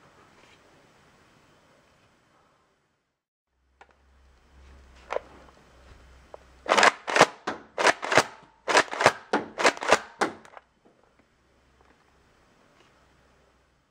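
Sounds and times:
toy blaster clacks and pops: 6.7s - 10.7s.

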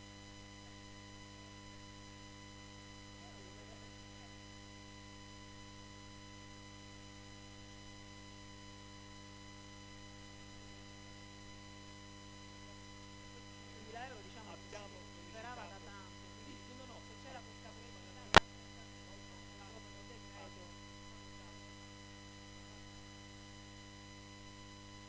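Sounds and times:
electrical mains hum: 0.0s - 25.0s
faint distant voice: 3.2s - 4.3s, 12.6s - 21.7s.

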